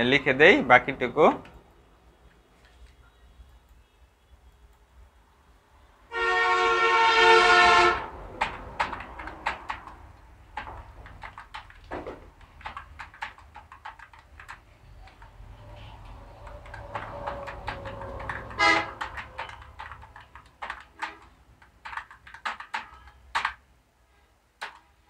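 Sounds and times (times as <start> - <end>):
vehicle horn: 6.1 - 8.1, 18.5 - 19.0
keyboard keys clicking: 7.9 - 23.6, 24.6 - 25.0.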